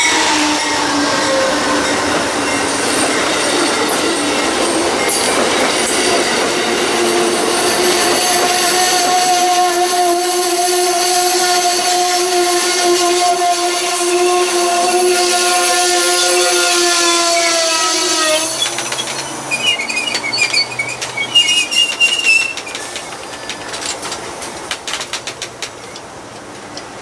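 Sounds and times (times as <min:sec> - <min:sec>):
locomotive horn: 0:00.0 - 0:02.4, 0:07.0 - 0:18.8
train wheels squealing: 0:00.0 - 0:12.0, 0:15.2 - 0:24.0
rail clicks of passing cars: 0:00.0 - 0:27.0.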